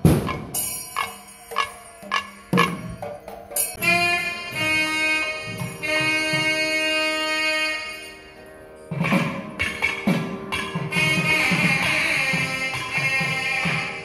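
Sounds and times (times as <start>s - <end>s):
drum strokes: 0.0s - 7.0s, 8.9s - 14.0s
double-reed pipe long notes: 3.8s - 8.7s.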